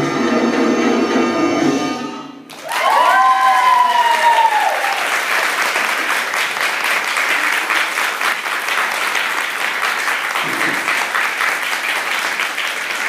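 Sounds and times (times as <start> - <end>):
crowd shouted cheer: 2.5 - 5.4
audience applauding: 2.5 - 13.0.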